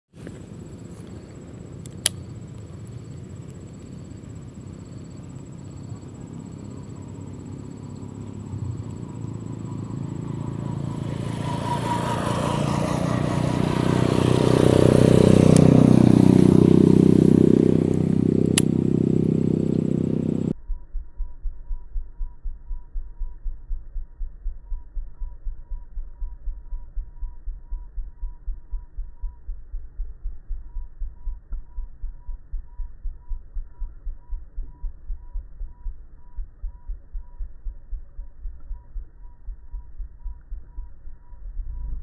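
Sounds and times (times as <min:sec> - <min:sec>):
vehicle engine passing: 0:00.3 - 0:20.5.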